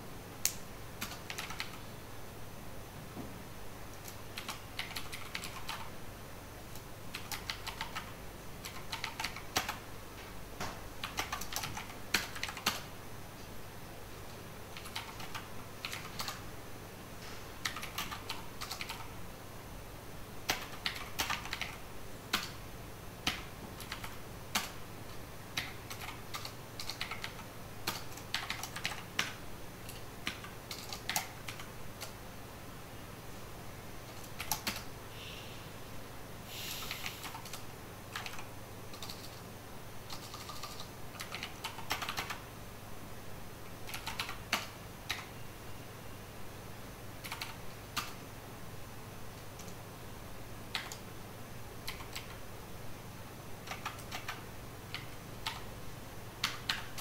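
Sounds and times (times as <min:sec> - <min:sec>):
computer keyboard typing: 0:00.4 - 0:01.8, 0:03.9 - 0:05.9, 0:07.1 - 0:09.8, 0:10.7 - 0:12.9, 0:14.7 - 0:16.4, 0:17.6 - 0:19.2, 0:20.4 - 0:22.6, 0:23.2 - 0:24.8, 0:25.5 - 0:32.2, 0:34.0 - 0:34.9, 0:36.8 - 0:42.5, 0:43.8 - 0:45.3, 0:47.2 - 0:48.2, 0:49.4 - 0:49.8, 0:50.7 - 0:51.1, 0:51.8 - 0:52.4, 0:53.6 - 0:55.8, 0:56.4 - 0:57.0.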